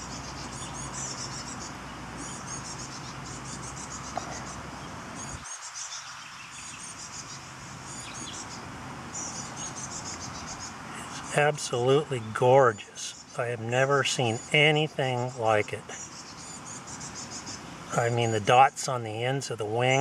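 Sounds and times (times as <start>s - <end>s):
insects chirping: 0.0s - 20.0s
low steady hum: 6.5s - 20.0s.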